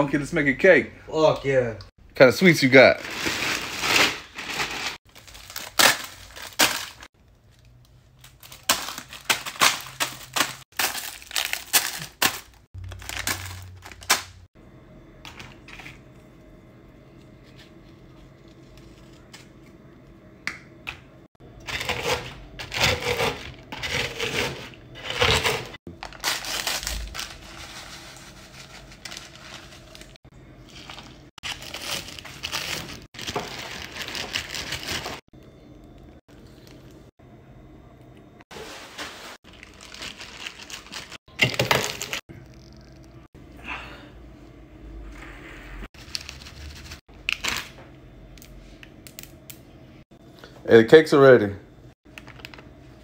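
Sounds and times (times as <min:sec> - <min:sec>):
plastic crinkling: 0:03.0 - 0:14.3, 0:25.9 - 0:35.2, 0:38.6 - 0:42.2
cookies being crushed by hand: 0:03.0 - 0:14.5, 0:21.6 - 0:27.5, 0:28.7 - 0:35.2, 0:39.5 - 0:42.6.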